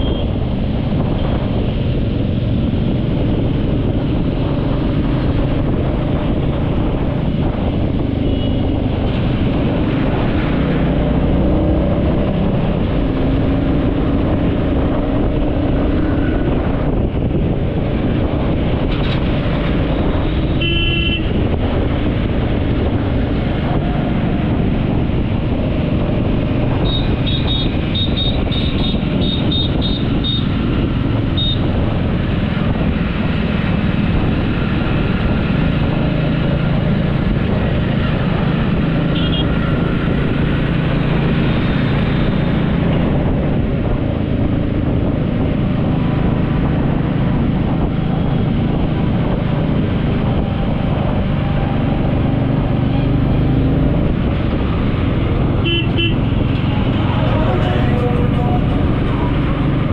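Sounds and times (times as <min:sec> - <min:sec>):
vehicle engine and road noise: 0:00.0 - 0:59.9
car horn: 0:08.2 - 0:08.6, 0:20.4 - 0:21.4, 0:26.8 - 0:30.5, 0:31.4 - 0:31.6, 0:39.1 - 0:39.6, 0:55.6 - 0:56.3.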